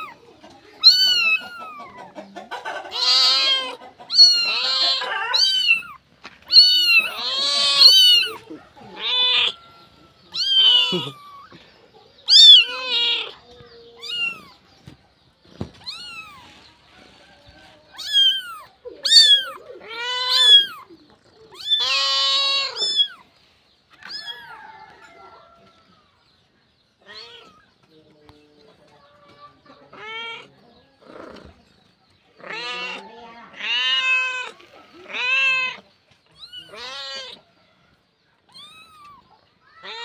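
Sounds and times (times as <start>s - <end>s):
cat meowing: 0.8s - 2.0s, 2.9s - 9.7s, 10.3s - 11.6s, 12.2s - 14.6s, 15.8s - 16.6s, 17.9s - 23.2s, 24.0s - 24.6s, 27.0s - 27.7s, 29.9s - 30.6s, 32.4s - 35.8s, 36.4s - 37.4s, 38.5s - 40.0s.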